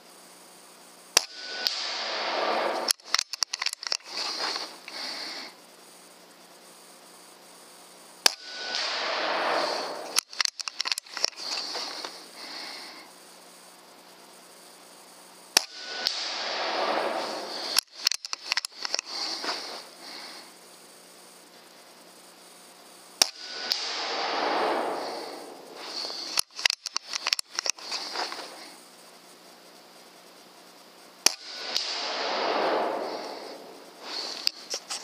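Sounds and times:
air rifle shots: 1.2s - 5.2s, 8.2s - 12.8s, 15.6s - 20.4s, 23.2s - 28.6s, 31.2s - 34.6s
quick run of clicks: 2.6s - 5.0s, 9.6s - 12.2s, 17.6s - 19.8s, 25.8s - 28.5s
rush of noise: 8.5s - 13.0s, 15.8s - 20.5s, 23.4s - 28.6s, 31.5s - 34.7s.

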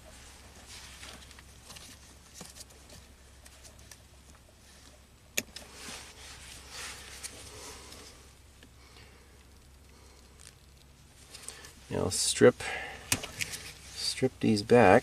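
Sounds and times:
wires rustling: 0.0s - 15.0s.

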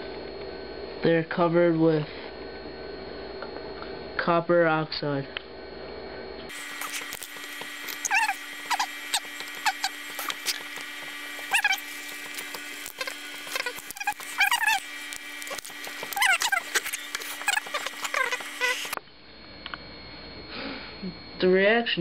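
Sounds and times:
steady hum: 0.0s - 22.0s
small animal squeaking: 7.9s - 10.6s, 11.5s - 19.0s.

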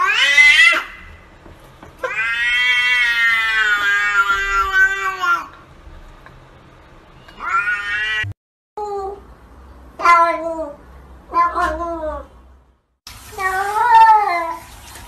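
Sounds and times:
cat meowing: 0.0s - 1.1s, 2.0s - 5.6s, 7.2s - 8.4s, 10.0s - 12.3s, 13.3s - 14.7s.

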